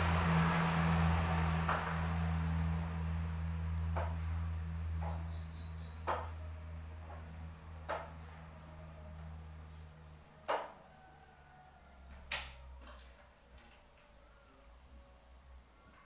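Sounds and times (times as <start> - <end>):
low steady hum: 0.0 - 16.0
hard objects knocking: 7.0 - 8.3.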